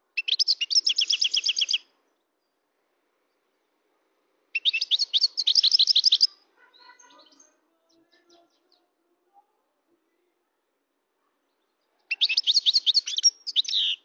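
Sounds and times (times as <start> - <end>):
goldfinch singing: 0.2 - 1.8, 4.6 - 8.9, 12.0 - 14.0.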